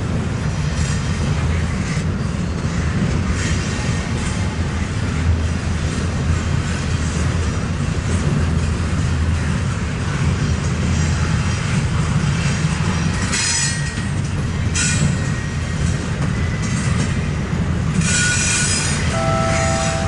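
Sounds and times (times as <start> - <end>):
train wheels rumbling on rail: 0.0 - 20.0
high-pitched wheel squeals: 18.0 - 20.0.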